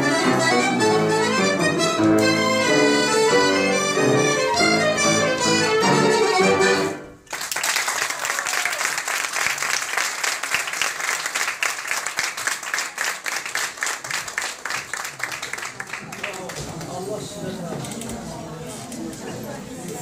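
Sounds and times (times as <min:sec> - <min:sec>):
violin clarinet and piano ensemble: 0:00.0 - 0:07.2
audience applauding: 0:07.2 - 0:17.1.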